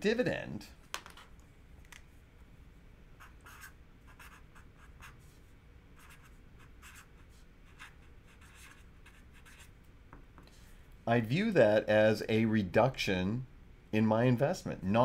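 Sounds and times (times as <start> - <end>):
marker writing on paper: 3.2 - 5.3, 6.0 - 9.7.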